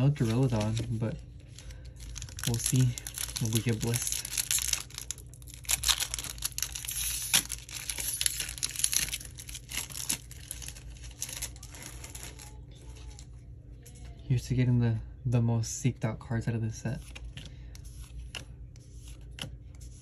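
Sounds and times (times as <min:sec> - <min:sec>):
foil wrapper crinkling and tearing: 0:00.0 - 0:13.3.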